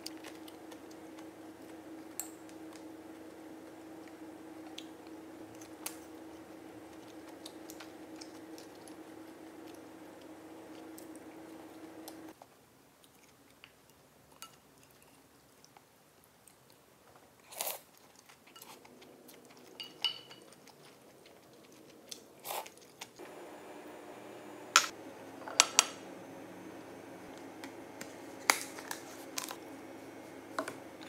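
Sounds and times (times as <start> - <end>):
soft chewing: 0.0 - 23.2.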